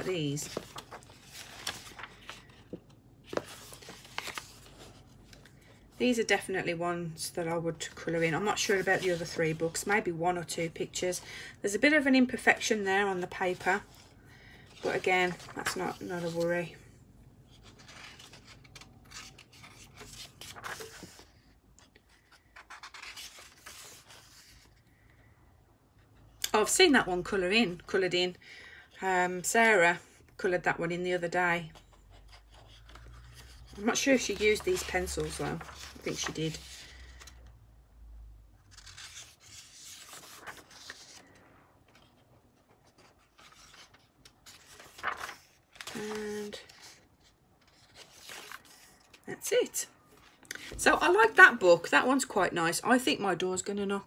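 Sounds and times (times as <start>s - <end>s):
book pages turning: 0.0s - 6.0s, 12.6s - 16.8s, 17.5s - 24.8s, 31.8s - 37.5s, 38.6s - 49.2s.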